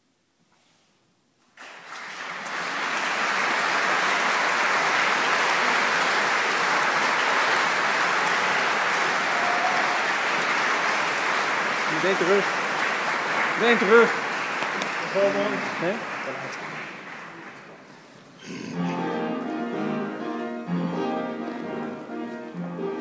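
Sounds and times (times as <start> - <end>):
audience applause: 1.6 - 18.6.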